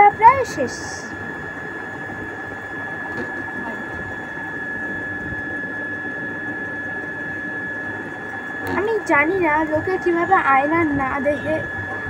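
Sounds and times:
high-pitched whine: 0:00.0 - 0:12.0
mechanical hum and hiss: 0:00.0 - 0:12.0.

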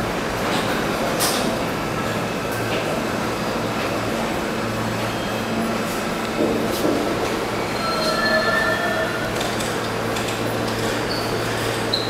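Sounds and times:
train wheels on rails: 0:00.0 - 0:12.0
high wheel squeal: 0:07.6 - 0:09.4, 0:11.0 - 0:12.0.

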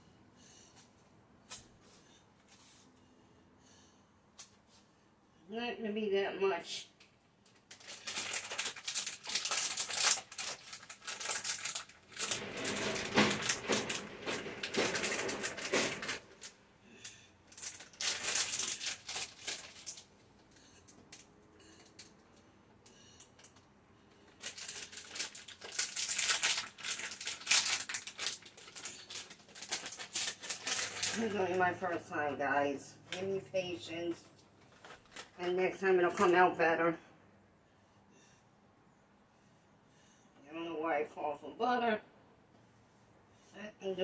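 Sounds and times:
rustling: 0:07.6 - 0:20.6, 0:24.3 - 0:31.6, 0:34.1 - 0:35.4.

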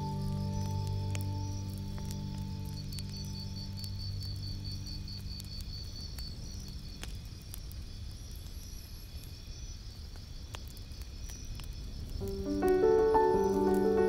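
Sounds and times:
soft melodic music: 0:00.0 - 0:03.9, 0:12.2 - 0:14.0
faint low rumble: 0:00.0 - 0:07.0
high cricket-like trill: 0:00.0 - 0:07.0, 0:12.2 - 0:14.0.

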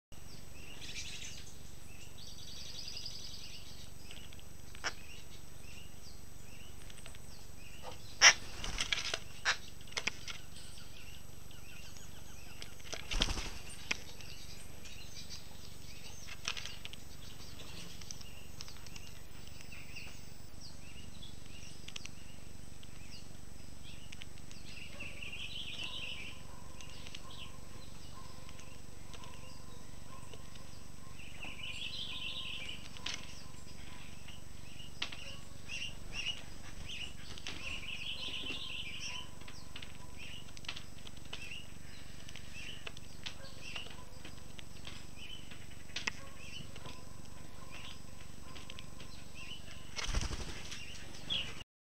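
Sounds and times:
small birds chirping: 0:00.1 - 0:51.6
steady outdoor hiss: 0:00.2 - 0:51.6.

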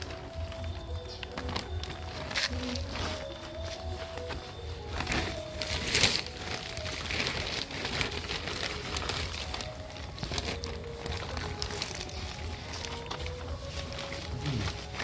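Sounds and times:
plastic sheeting rustling: 0:00.0 - 0:15.0.

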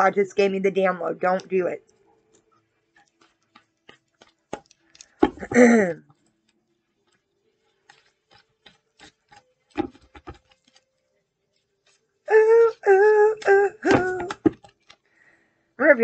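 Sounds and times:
cards being shuffled: 0:07.8 - 0:11.0.

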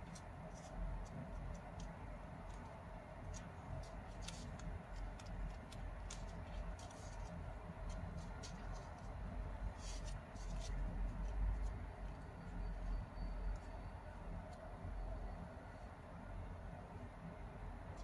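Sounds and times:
paper crinkling: 0:00.0 - 0:12.2
steady low hum: 0:00.0 - 0:18.0.

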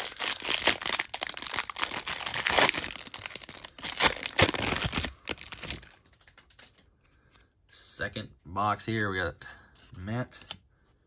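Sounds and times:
plastic wrapper crinkling and tearing: 0:00.0 - 0:06.8.

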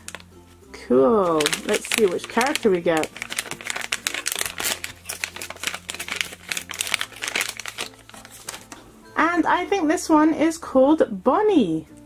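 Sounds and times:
foil wrapper crinkling: 0:00.0 - 0:00.3, 0:01.2 - 0:08.8.

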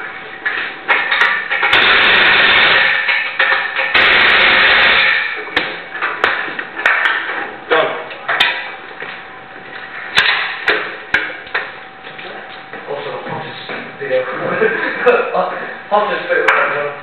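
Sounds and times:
loud hiss: 0:01.7 - 0:03.1, 0:03.9 - 0:05.4.

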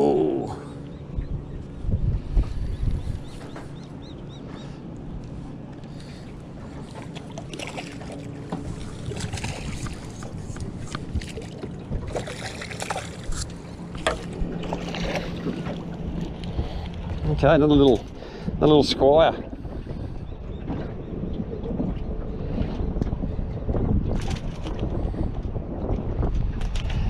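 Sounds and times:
wind buffeting microphone: 0:00.0 - 0:27.0
water splashing: 0:05.9 - 0:18.4.

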